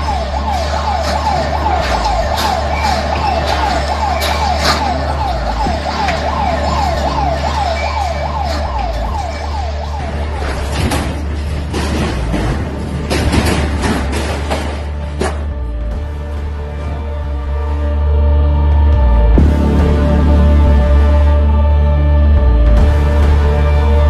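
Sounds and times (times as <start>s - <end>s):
warning siren rising sweeps: 0.0s - 11.4s
scattered knocks: 0.0s - 17.6s.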